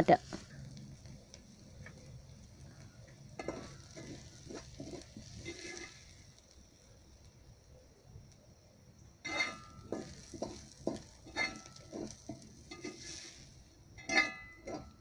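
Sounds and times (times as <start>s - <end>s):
faint sizzle: 0.0s - 15.0s
metal spoon scraping cookware: 3.4s - 6.0s, 9.3s - 13.3s, 14.0s - 14.9s.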